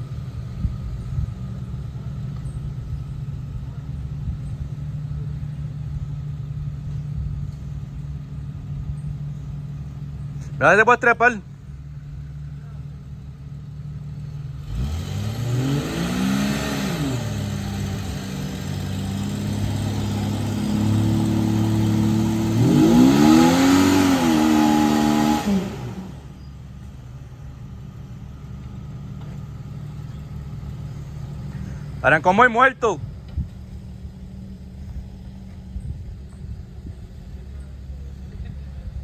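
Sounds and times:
engine revving hard: 14.6 - 26.3.

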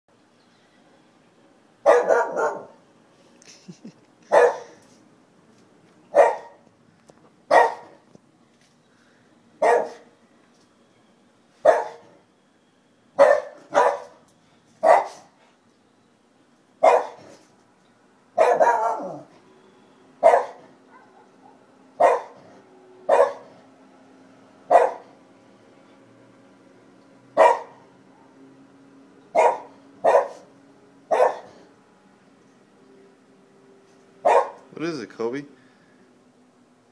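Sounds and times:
dog barking: 1.8 - 2.8, 4.3 - 4.8, 6.1 - 6.6, 7.5 - 8.0, 9.6 - 10.1, 11.6 - 12.1, 13.2 - 14.2, 14.8 - 15.3, 16.8 - 17.3, 18.4 - 19.3, 20.2 - 22.4, 23.1 - 23.5, 24.7 - 25.2, 27.4 - 28.4, 29.3 - 30.5, 31.1 - 31.6, 34.2 - 34.6.

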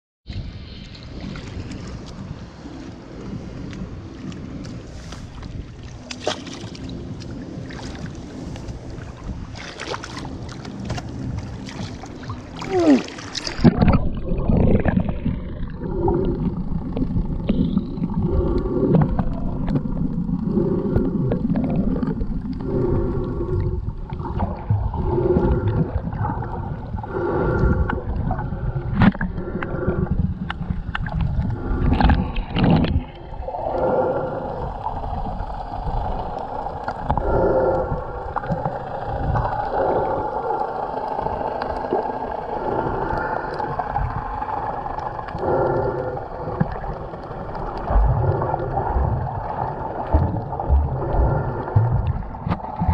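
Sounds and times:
faint droning tones: 0.3 - 52.9
muffled underwater rumble: 0.3 - 52.9.

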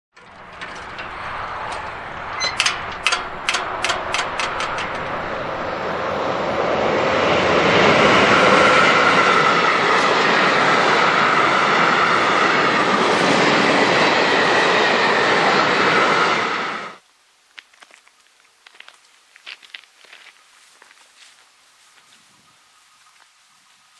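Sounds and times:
train wheels clicking over rail joints: 0.2 - 5.9
train rushing noise: 0.2 - 17.0.

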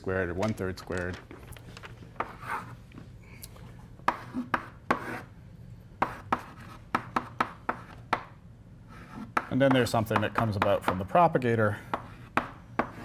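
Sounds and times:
chalk tapping and scraping on blackboard: 2.2 - 2.8, 4.0 - 5.3, 6.0 - 11.0, 11.8 - 13.0.

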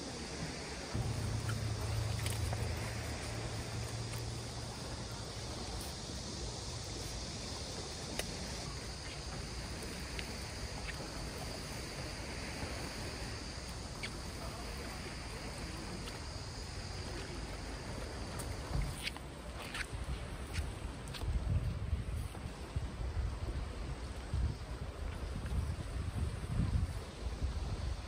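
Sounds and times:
light wind: 0.0 - 28.0
faint clicks: 8.0 - 9.2.

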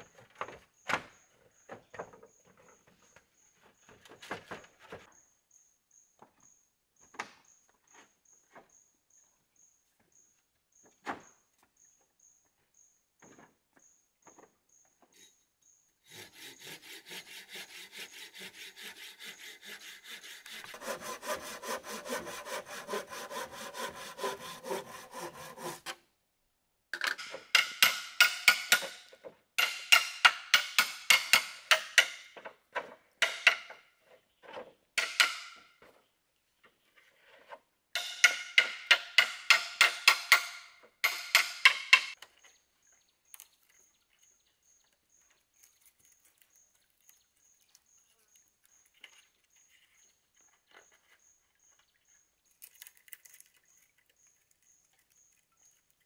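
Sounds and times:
hand saw cutting bamboo: 16.0 - 26.0, 35.0 - 35.6, 38.0 - 42.2.

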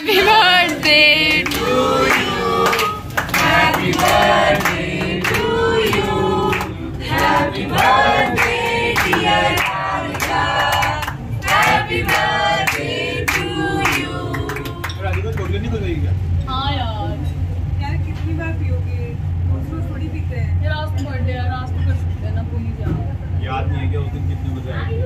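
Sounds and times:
group singing birthday song: 0.0 - 15.2
people clapping along: 0.0 - 15.7.

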